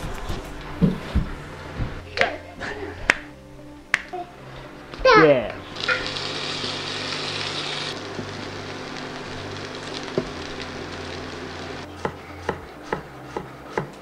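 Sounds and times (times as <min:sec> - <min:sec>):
potatoes sizzling in a frying pan: 0:05.8 - 0:11.9.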